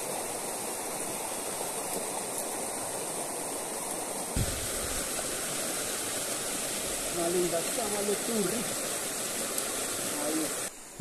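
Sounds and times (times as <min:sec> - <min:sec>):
fast-flowing river water: 0:00.0 - 0:11.0
short low thump: 0:04.4 - 0:05.0.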